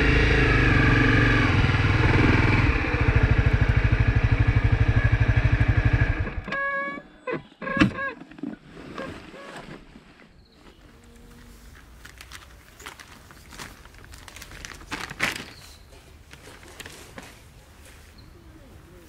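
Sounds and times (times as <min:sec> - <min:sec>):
faint wind: 0:00.0 - 0:19.0
luggage rustling and handling: 0:10.7 - 0:17.5.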